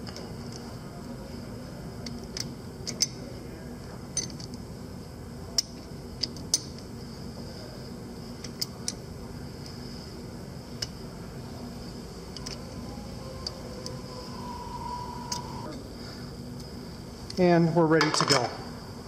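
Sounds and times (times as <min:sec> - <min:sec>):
steady hum: 0:00.0 - 0:19.0.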